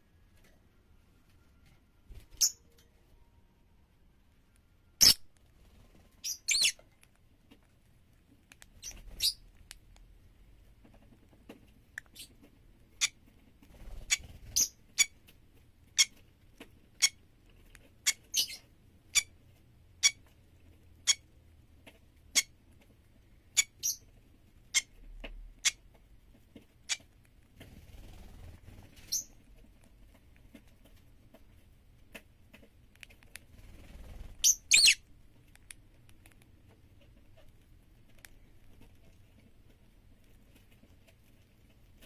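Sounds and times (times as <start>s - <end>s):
bird giving squeaky chirps: 6.2s - 6.8s, 8.8s - 9.5s, 12.1s - 12.3s, 13.8s - 15.1s, 18.0s - 18.6s, 23.6s - 24.0s, 29.0s - 29.3s, 34.4s - 35.0s.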